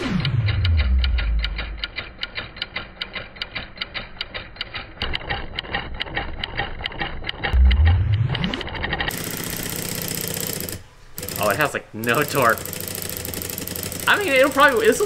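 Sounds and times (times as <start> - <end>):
loud low rising sweep: 0.0 - 2.0, 7.6 - 9.1
solenoid engine clicking: 0.0 - 7.9, 8.6 - 15.0.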